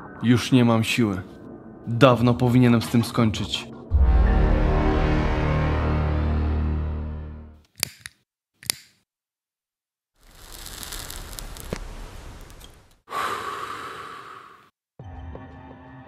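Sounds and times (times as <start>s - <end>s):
sharp clicks: 7.7s - 9.0s
heavy exhaled breath: 13.1s - 14.7s.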